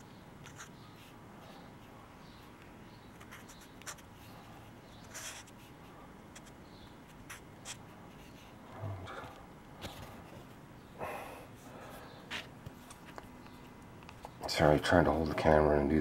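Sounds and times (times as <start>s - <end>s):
marker scratching on paper: 0.4s - 1.2s, 1.8s - 8.6s.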